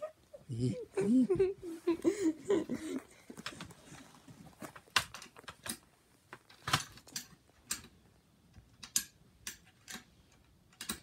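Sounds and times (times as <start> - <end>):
small hard parts clicking: 6.4 - 11.0.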